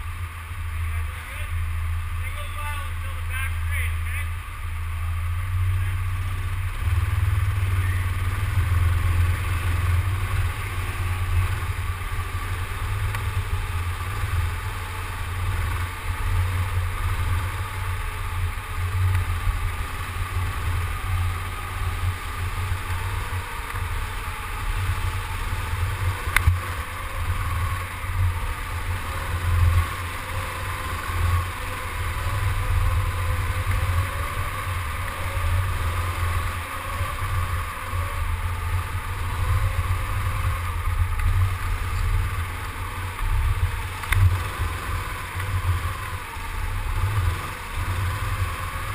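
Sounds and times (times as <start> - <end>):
go-kart engine: 0.0 - 48.9.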